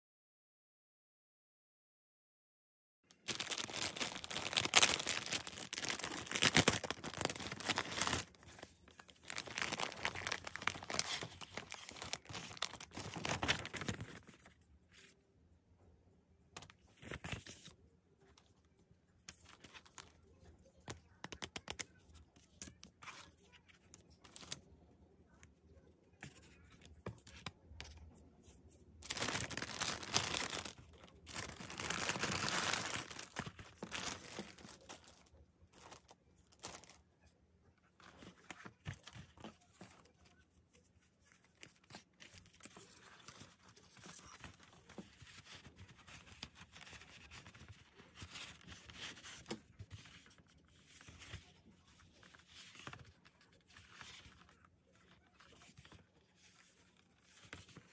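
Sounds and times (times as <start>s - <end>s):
plastic packaging crinkling: 3.1s - 14.4s, 29.0s - 37.0s.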